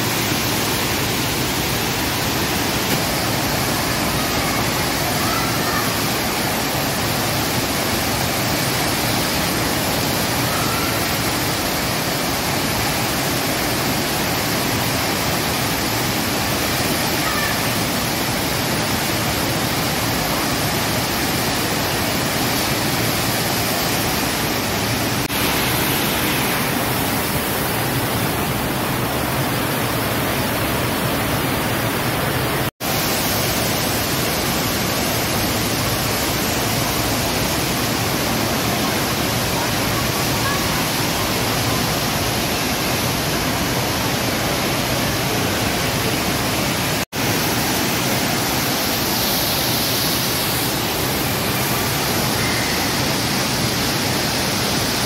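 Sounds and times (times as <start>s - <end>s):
rushing water: 0.0s - 55.0s.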